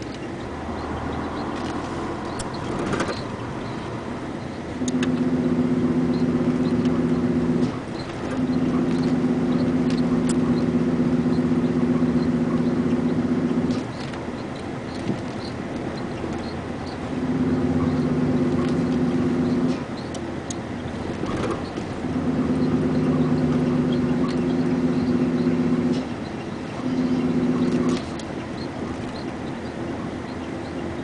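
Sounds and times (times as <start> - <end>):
vehicle engine droning: 0.0 - 31.0.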